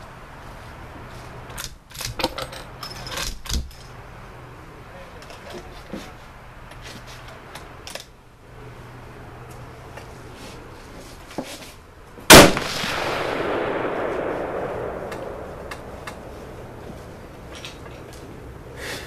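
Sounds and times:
rifle shot with echo: 0:12.3 - 0:16.8.

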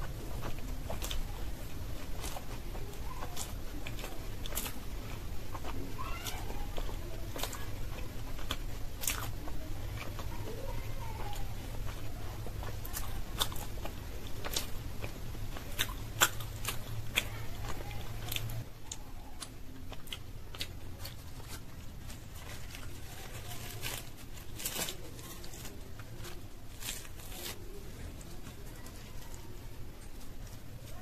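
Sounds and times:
chewing clicks: 0:00.0 - 0:21.9
fried pastry tearing crackles: 0:19.4 - 0:29.4.

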